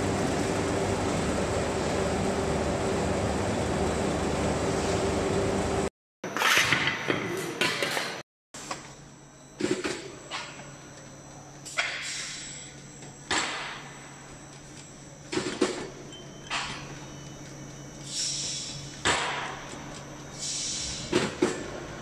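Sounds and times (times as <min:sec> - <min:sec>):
loud rushing machine noise: 0:00.0 - 0:05.9.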